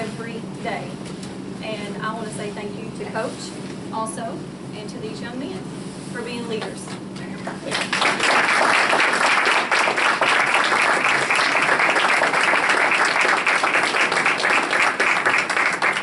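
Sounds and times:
crowd applauding: 7.6 - 16.0.

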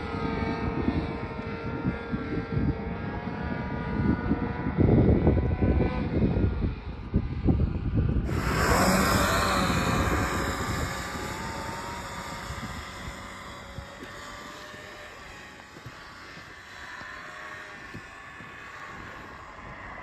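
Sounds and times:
snowmobile engine running hard: 8.2 - 20.0.

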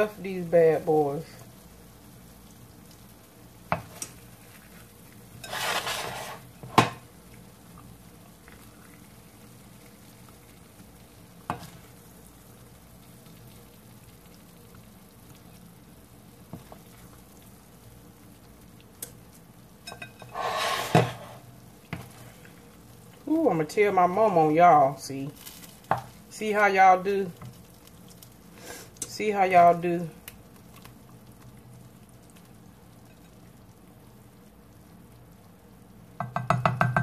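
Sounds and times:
spoon scraping a frying pan: 5.4 - 6.9, 19.8 - 22.4
spoon knocking on cookware: 36.2 - 37.0.

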